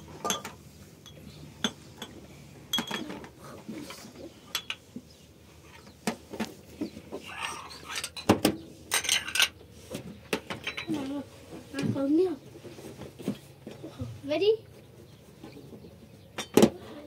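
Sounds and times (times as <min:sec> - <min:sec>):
glasses clinking on tray: 0:00.2 - 0:03.2, 0:04.5 - 0:04.8, 0:08.9 - 0:09.5, 0:10.6 - 0:11.0.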